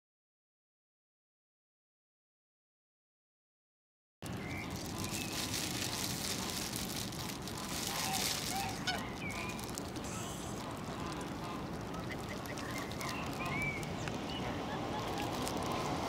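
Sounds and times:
steady outdoor hiss: 4.2 - 16.0
geese honking: 6.3 - 15.2.

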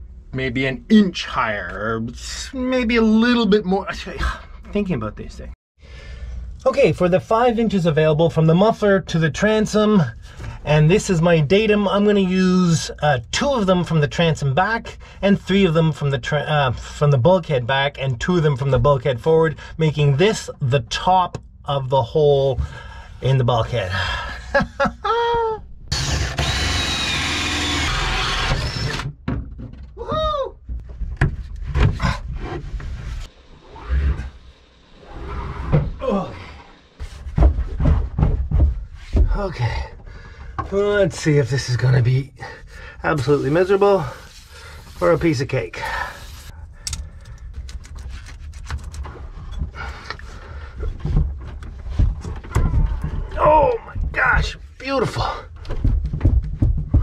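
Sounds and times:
drill whining spinning up and down: 25.9 - 29.1
power drill boring through wood: 25.9 - 29.1.

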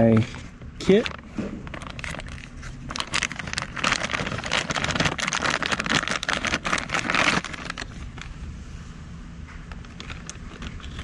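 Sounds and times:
plastic bag crinkling: 0.8 - 8.3.

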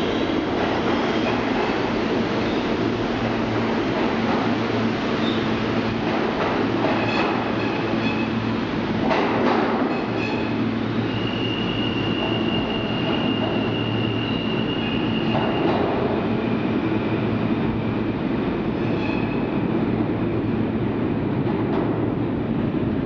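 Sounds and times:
subway train wheels rumbling: 0.0 - 23.0
high wheel squeal: 10.0 - 15.7.

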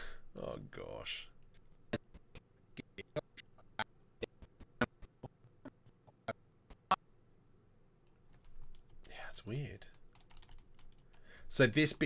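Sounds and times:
computer keys clicking: 8.0 - 9.0, 9.9 - 11.2.

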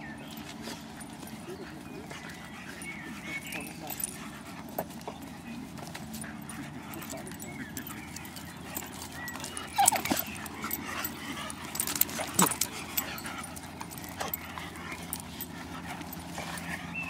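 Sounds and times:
dogs play-fighting: 0.0 - 17.0.

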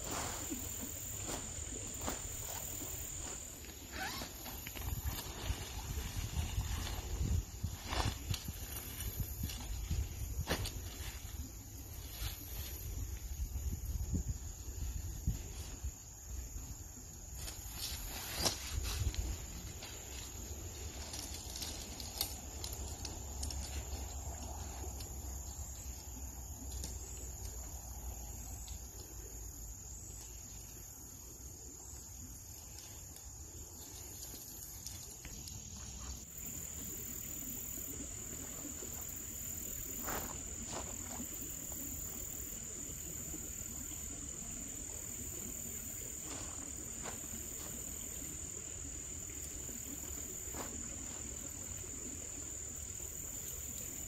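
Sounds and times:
tent poles and fabric clicking: 0.0 - 11.4, 17.4 - 26.0
crickets chirping: 0.0 - 54.0.

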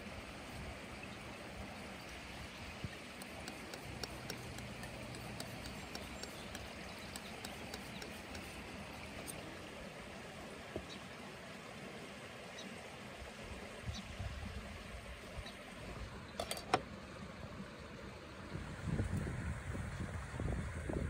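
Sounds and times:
outdoor background noise: 0.0 - 21.0
blade clicking on palette: 3.1 - 9.4
palette knife scraping paint: 3.2 - 9.1.

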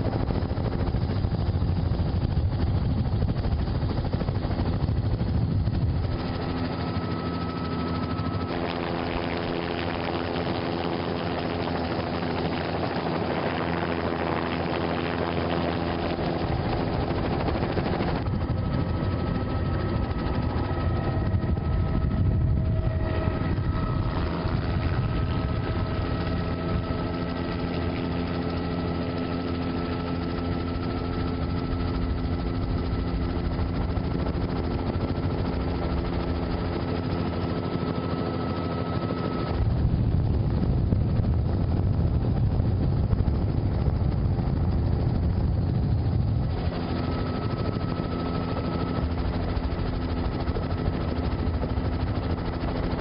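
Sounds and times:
helicopter rotor and engine: 0.0 - 53.0.

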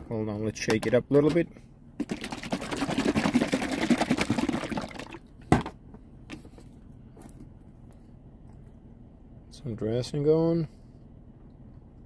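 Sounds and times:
liquid sloshing in shaken bottle: 2.0 - 5.2.

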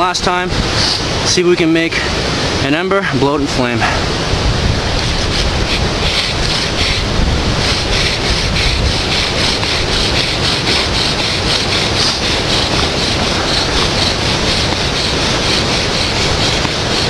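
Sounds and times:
wind buffeting microphone: 0.0 - 17.0
bow drill rasping: 5.0 - 17.0.

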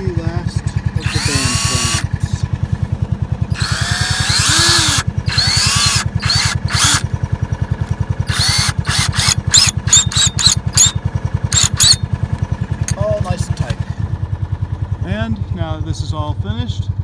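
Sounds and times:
cordless drill motor whine: 1.0 - 2.1, 3.5 - 7.1, 8.2 - 12.0.

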